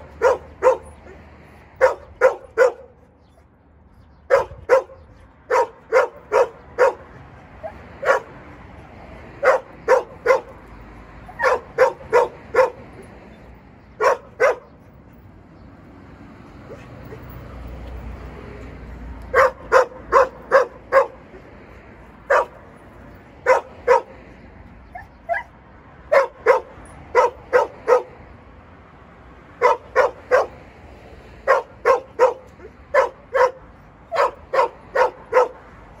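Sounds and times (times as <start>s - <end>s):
dog barking sharply: 0.2s - 0.9s, 9.4s - 10.6s, 11.3s - 12.8s, 19.3s - 21.2s, 22.3s - 22.6s, 29.6s - 30.6s, 31.5s - 35.6s.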